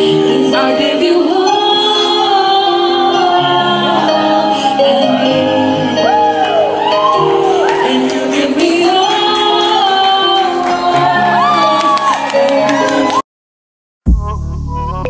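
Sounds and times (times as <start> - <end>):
woman singing into a microphone: 0.0 - 13.2
instrumental backing track: 14.1 - 15.0.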